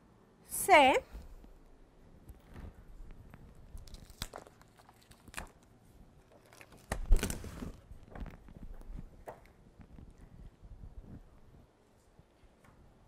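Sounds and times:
paper poster rustling and crinkling: 2.3s - 10.6s
paper snapping: 3.8s - 5.6s, 6.4s - 8.4s.

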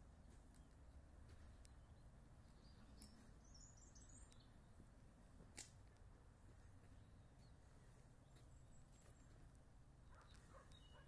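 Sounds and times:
faint bird chirps: 1.4s - 4.8s, 10.1s - 11.0s.

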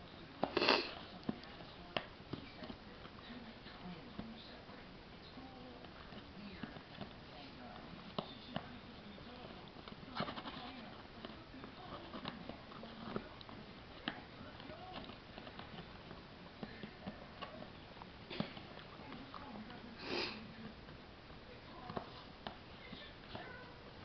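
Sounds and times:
paper plate crackling and tapping: 0.0s - 24.0s
dog sniffing: 0.4s - 1.7s, 5.8s - 20.7s.

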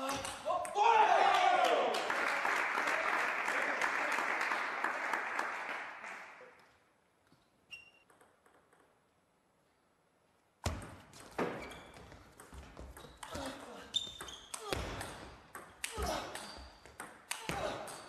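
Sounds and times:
applause: 1.2s - 6.6s.

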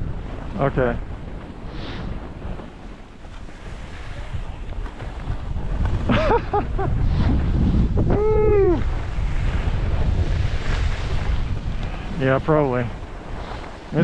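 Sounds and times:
wind buffeting microphone: 0.0s - 14.0s
person calling out: 8.1s - 8.8s.

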